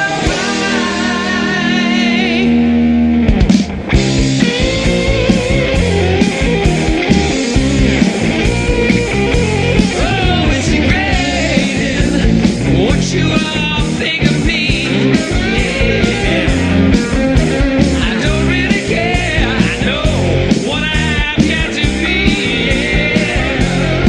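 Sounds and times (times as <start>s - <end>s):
man singing: 0.0s - 2.7s, 9.8s - 16.7s, 17.5s - 24.0s
rock band playing: 0.0s - 24.0s.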